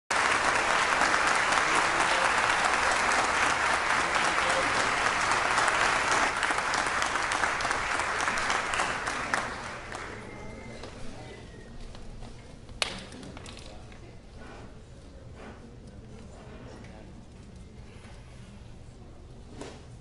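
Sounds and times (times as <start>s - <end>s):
audience applauding: 0.1s - 11.0s.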